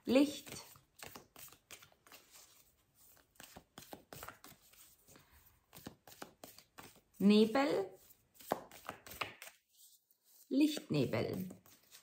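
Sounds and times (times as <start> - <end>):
cards being shuffled: 0.2 - 7.2, 8.0 - 12.0.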